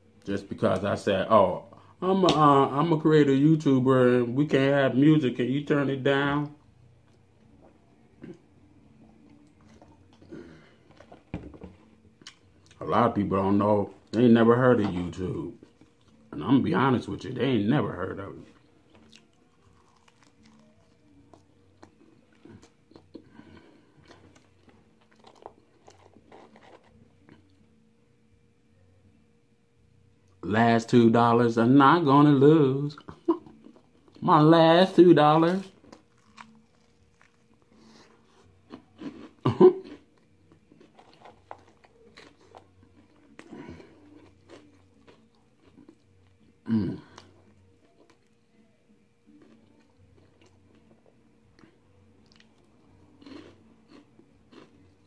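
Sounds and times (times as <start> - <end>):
pastry crust crunching: 18.5 - 23.2, 24.0 - 27.6, 35.3 - 46.4, 52.2 - 54.9
man chewing with wet mouth clicks: 51.5 - 55.0.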